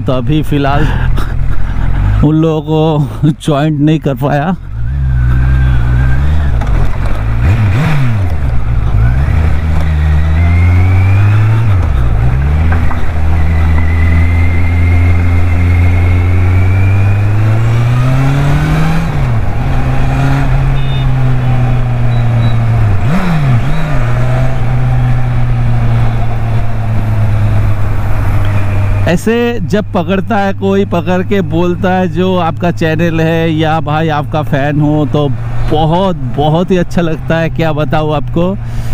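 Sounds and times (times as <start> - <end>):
motorcycle engine revving: 4.6 - 38.0.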